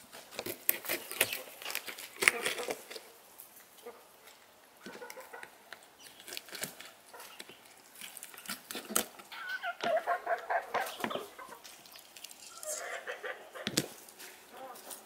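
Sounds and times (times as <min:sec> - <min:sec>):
chickens clucking: 0:04.8 - 0:06.0, 0:07.0 - 0:07.6, 0:09.2 - 0:15.0.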